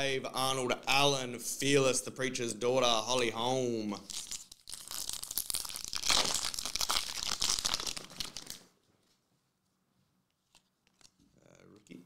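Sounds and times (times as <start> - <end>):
foil wrapper tearing and crinkling: 4.0 - 8.6.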